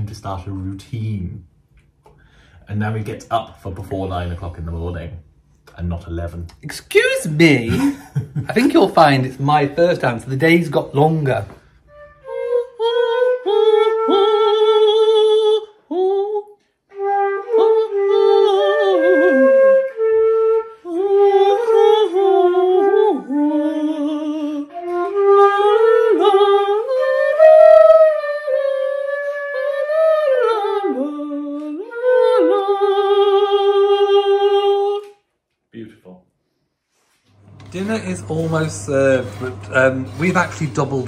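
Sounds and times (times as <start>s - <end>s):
flute playing slow melody: 11.6s - 34.5s.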